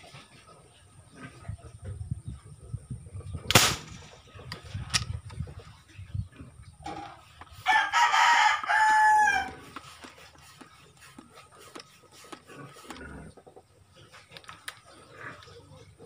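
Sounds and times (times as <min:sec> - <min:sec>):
rooster crowing: 0:07.6 - 0:09.6.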